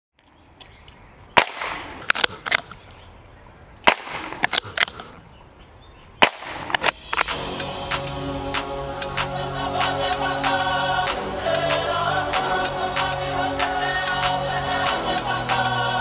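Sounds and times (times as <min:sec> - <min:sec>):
quieter sharp clicks: 0:00.6 - 0:02.8, 0:03.8 - 0:05.2, 0:06.2 - 0:15.8
air rifle shot crack: 0:01.4 - 0:02.7, 0:03.8 - 0:05.2, 0:06.2 - 0:07.4.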